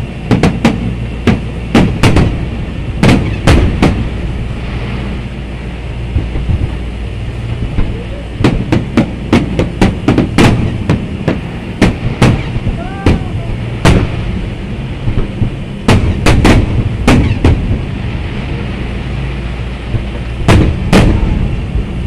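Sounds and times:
steady low rumble: 0:00.0 - 0:22.0
firework shells bursting: 0:00.3 - 0:02.4, 0:03.0 - 0:04.2, 0:07.7 - 0:14.3, 0:15.0 - 0:17.9, 0:19.9 - 0:21.4.

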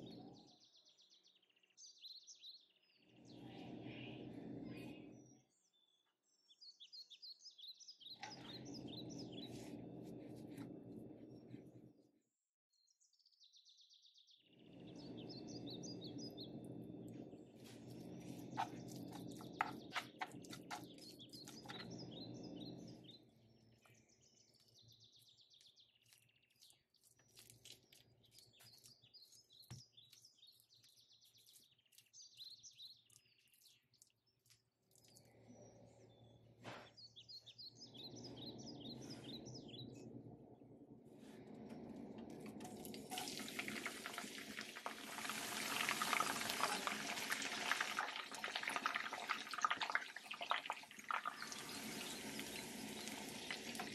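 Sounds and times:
birds chirping faintly: 0:00.0 - 0:53.9
sizzling in hot oil: 0:42.6 - 0:53.9.

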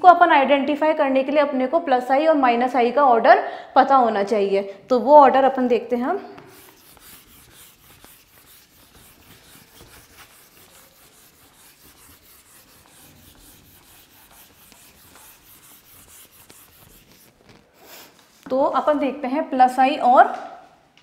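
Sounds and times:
eraser rubbing whiteboard: 0:06.4 - 0:18.5.

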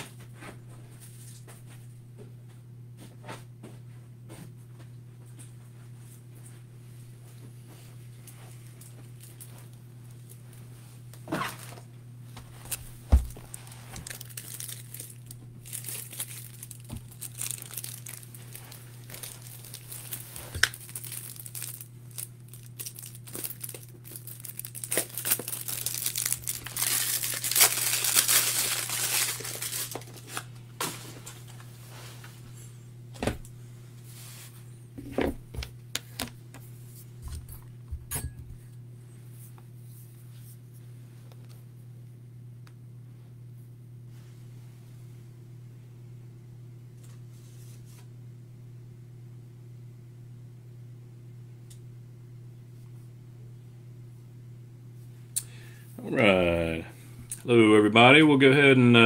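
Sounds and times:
steady low hum: 0:00.0 - 0:59.0
packaging crinkling and tearing: 0:12.7 - 0:31.0.

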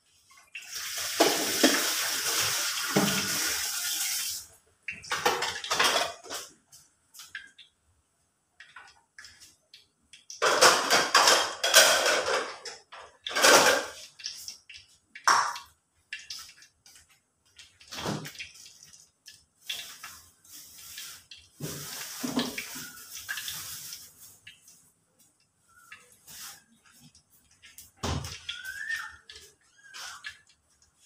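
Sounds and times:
soup boiling and bubbling: 0:12.0 - 0:31.0.

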